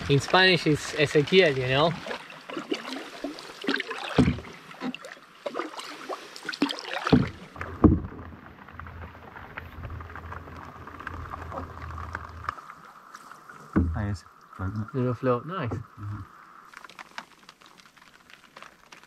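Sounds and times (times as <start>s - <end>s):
paddle strokes splashing: 0.0s - 14.0s
paddle knocking on hull: 4.1s - 4.6s, 7.0s - 8.3s, 13.7s - 14.0s
low rumble: 7.5s - 12.6s.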